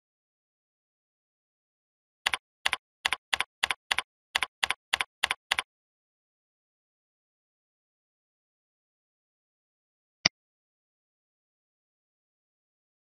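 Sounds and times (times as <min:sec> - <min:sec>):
keyboard typing: 0:02.3 - 0:05.7.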